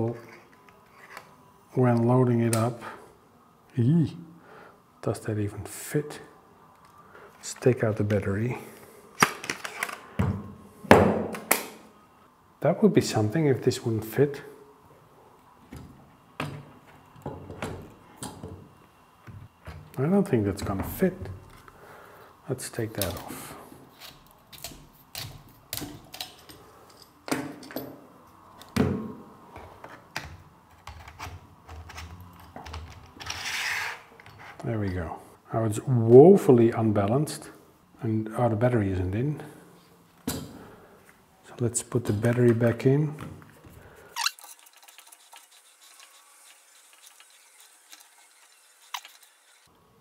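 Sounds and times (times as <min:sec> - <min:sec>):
camera handling clicks and rustles: 0:09.2 - 0:10.1.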